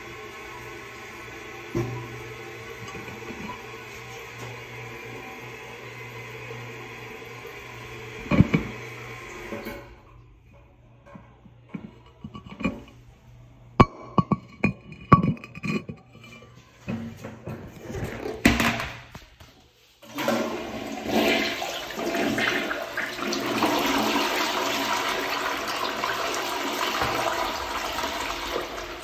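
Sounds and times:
toilet flushing: 0.0s - 10.3s, 20.0s - 29.0s.

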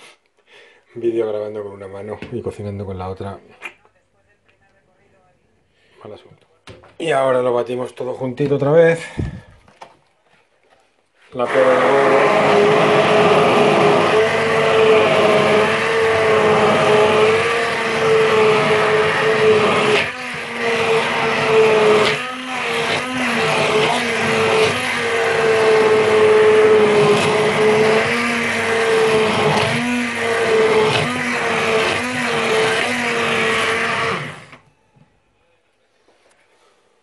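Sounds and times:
immersion blender whining in a pot: 11.3s - 34.7s.

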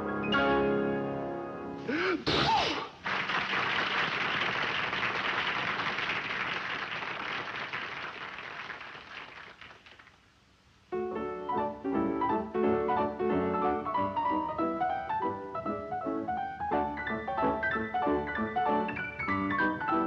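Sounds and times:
piano notes: 0.0s - 1.8s, 10.9s - 20.0s.

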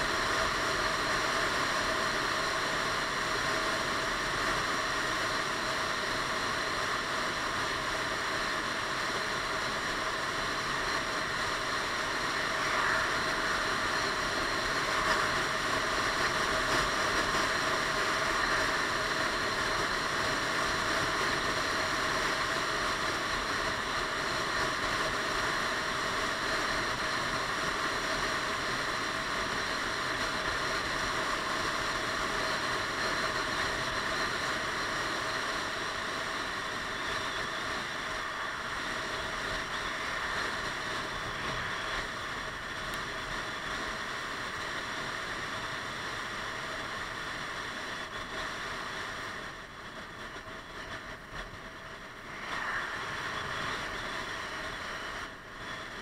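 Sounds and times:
wind rush over helmet: 10.3s - 19.6s, 36.7s - 44.0s, 50.8s - 56.0s.

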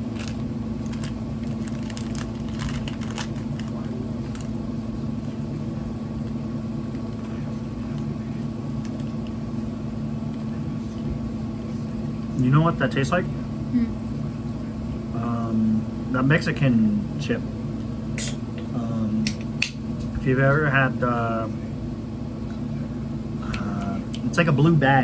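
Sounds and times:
crisp crackles and clicks: 0.0s - 4.6s, 6.2s - 9.4s
low droning hum: 0.0s - 25.0s.

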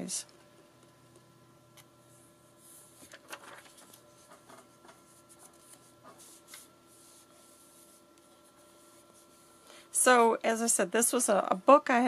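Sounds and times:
paper rustling and tapping: 3.0s - 6.7s.

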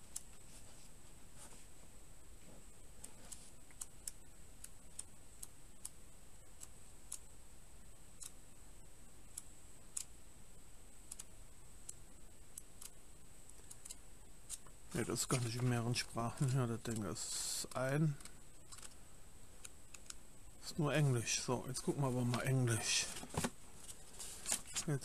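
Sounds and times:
paper pages rustling: 22.2s - 25.0s.

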